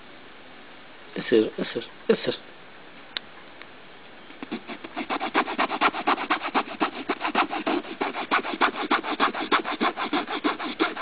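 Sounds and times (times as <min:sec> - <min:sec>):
rhythmic scratching on nylon fabric: 0:04.4 - 0:11.0.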